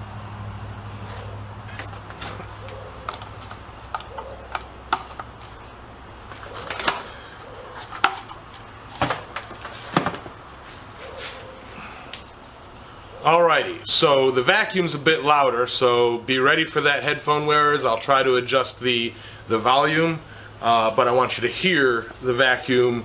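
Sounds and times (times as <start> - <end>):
shop vacuum being set down: 1.7 - 2.5, 9.0 - 10.4.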